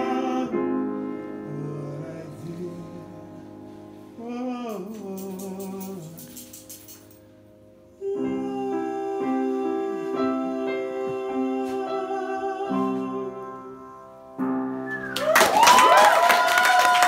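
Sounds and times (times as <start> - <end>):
upright piano chords: 0.0 - 15.5
whooping cheers: 14.9 - 17.0
audience applause: 15.0 - 17.0.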